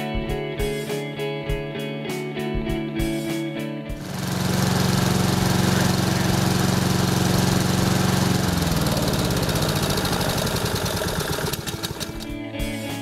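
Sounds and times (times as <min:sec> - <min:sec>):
lawnmower engine running: 0:04.0 - 0:12.4.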